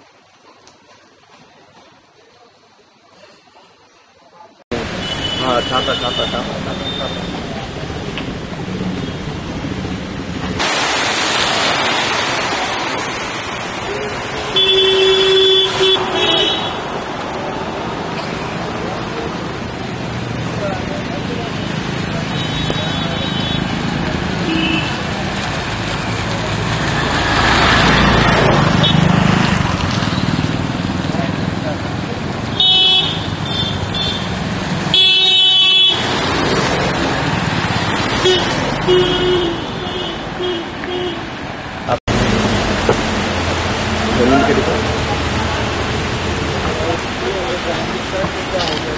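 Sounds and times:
traffic on wet road: 4.7 - 48.9
rain hiss: 4.8 - 28.4, 39.5 - 48.9
vehicle horn honking: 4.9 - 7.4, 14.4 - 16.8, 24.4 - 25.0, 32.6 - 34.3, 38.2 - 41.2.

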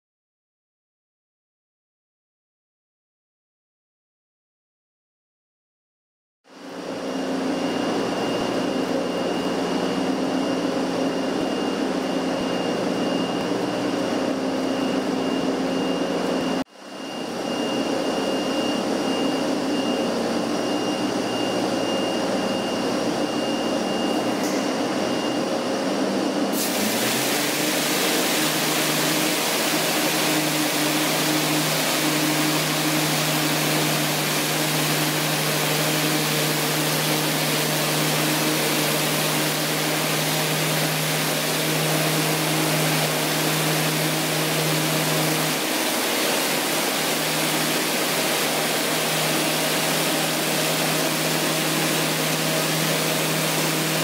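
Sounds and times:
machinery hum and whine: 6.5 - 54.0
water spray hissing: 26.6 - 32.6.

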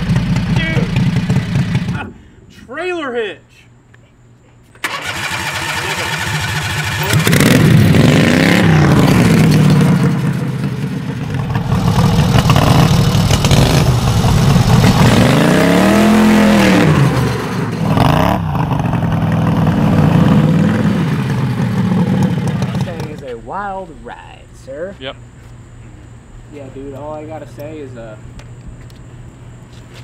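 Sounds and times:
lawn mower engine revving: 0.0 - 2.0, 4.8 - 23.2.

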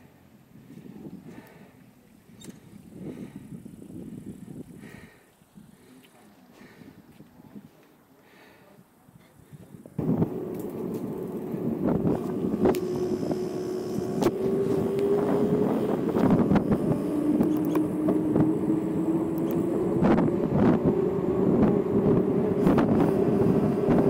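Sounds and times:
bicycle tyres rolling on asphalt: 0.2 - 7.9, 10.0 - 24.0
wind on microphone: 2.4 - 5.8, 9.4 - 24.0
droning hum: 10.0 - 24.0
bicycle clicks and rattles: 17.3 - 18.3.

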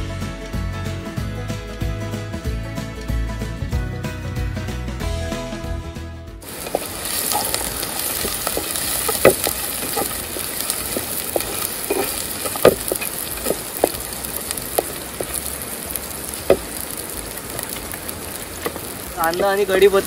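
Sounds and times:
oil popping: 6.4 - 20.0
onions sizzling in hot oil: 6.4 - 20.0.

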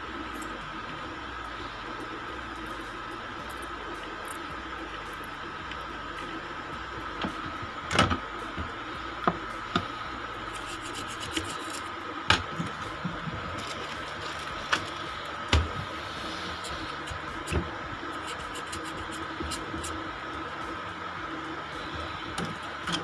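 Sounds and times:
faint high whine: 0.0 - 23.0
steady hiss: 0.0 - 23.0.

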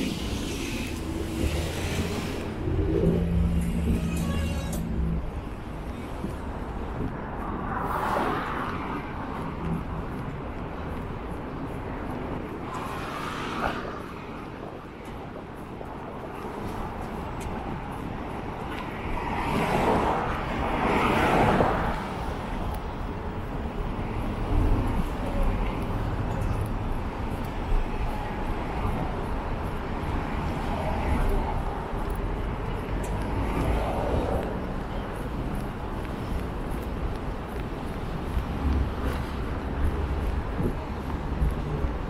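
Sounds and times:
road traffic rumble: 0.0 - 42.0
vehicles passing by: 0.0 - 42.0.

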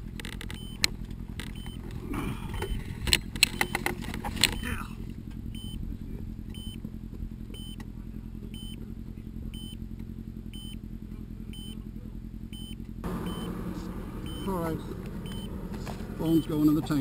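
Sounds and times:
motorcycle engine idling: 0.0 - 17.0
short electronic beeps: 0.5 - 0.8, 1.5 - 1.8, 2.6 - 2.9, 3.5 - 3.9, 5.5 - 5.8, 6.5 - 6.8, 7.5 - 7.8, 8.5 - 8.8, 9.5 - 9.8, 10.5 - 10.8, 11.5 - 11.8, 12.5 - 13.6, 14.2 - 15.5.

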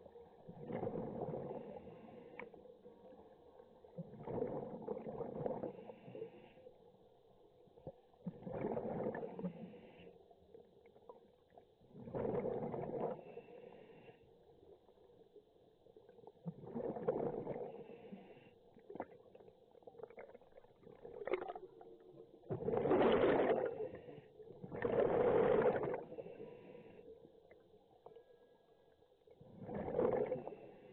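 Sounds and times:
exhaled bubbles gurgling: 0.0 - 2.3, 3.8 - 6.2, 8.2 - 10.0, 11.8 - 13.6, 15.9 - 26.8, 29.4 - 30.9.

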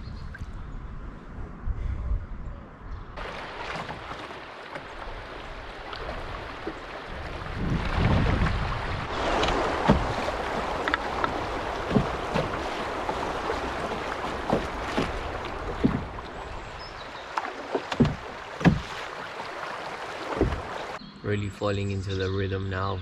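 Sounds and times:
canoe paddle strokes splashing: 3.2 - 21.0
choppy river water rushing: 3.2 - 21.0.

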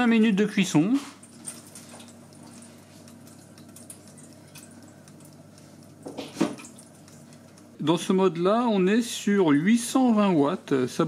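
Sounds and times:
oven fan hum: 0.0 - 11.0
chicken sizzling: 0.9 - 8.9.

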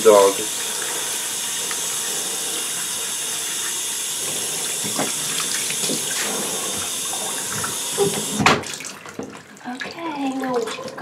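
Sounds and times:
shower head spraying water: 0.0 - 8.8.

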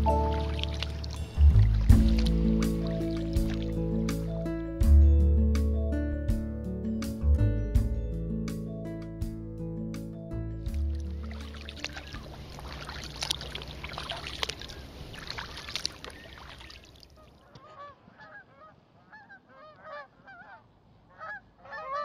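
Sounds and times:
paddle strokes splashing water: 0.0 - 3.8, 10.7 - 17.6
geese honking: 17.3 - 22.0.

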